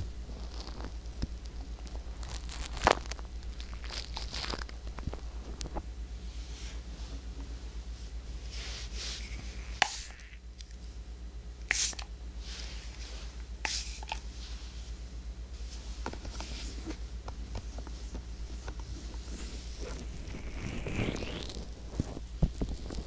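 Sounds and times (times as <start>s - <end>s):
rustling near microphone: 0.0s - 9.8s
steady low hum: 0.0s - 23.0s.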